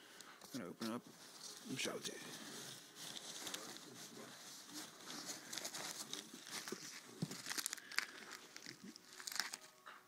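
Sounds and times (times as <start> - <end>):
paper and plastic crinkling: 0.4 - 10.0.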